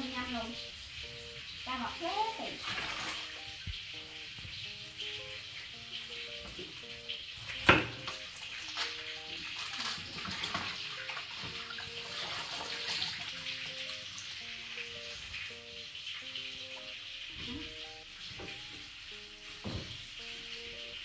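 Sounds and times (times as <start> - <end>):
soft background music: 0.0 - 21.0
tap water splashing into basin: 2.6 - 3.8, 6.4 - 15.6.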